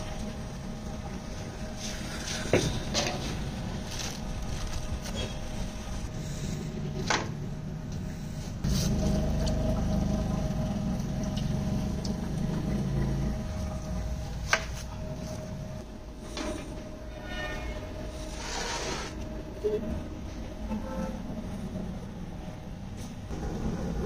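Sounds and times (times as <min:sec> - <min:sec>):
steady low hum: 0:00.0 - 0:24.0
plastic and foil crinkling: 0:03.2 - 0:06.1.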